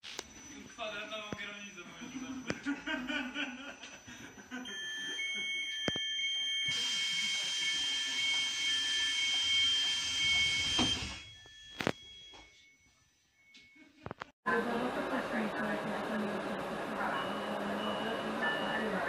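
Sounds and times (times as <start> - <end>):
train doors shutting thump: 10.3 - 11.2
repeating beeps: 17.1 - 19.0.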